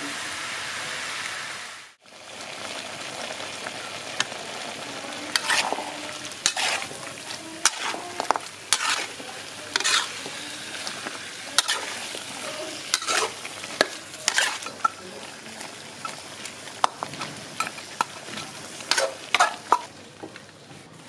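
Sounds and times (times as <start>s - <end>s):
food sizzling in a wok: 0.0s - 21.0s
spatula scraping and knocking pan: 5.3s - 15.0s, 16.8s - 20.4s.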